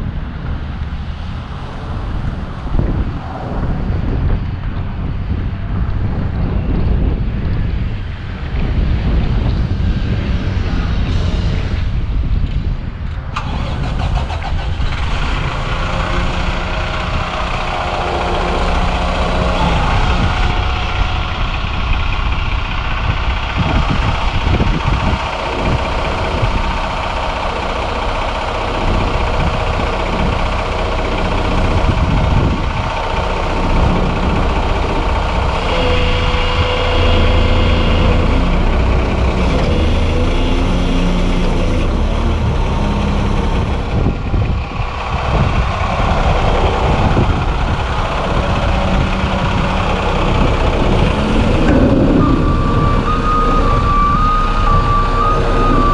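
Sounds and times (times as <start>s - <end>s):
diesel truck engine running: 0.0s - 55.9s
hydraulic whine: 13.4s - 55.9s.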